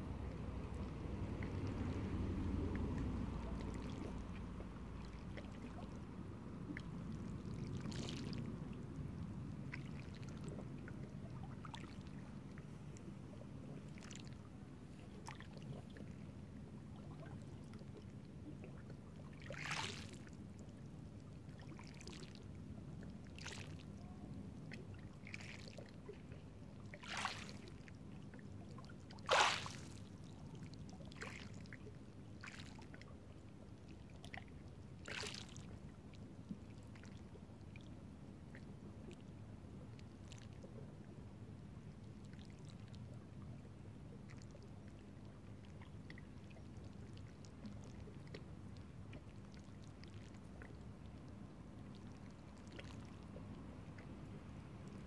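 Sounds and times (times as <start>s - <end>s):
short sharp splashes: 27.0s - 27.6s, 29.2s - 30.0s
small waves washing over rocks: 29.2s - 30.0s.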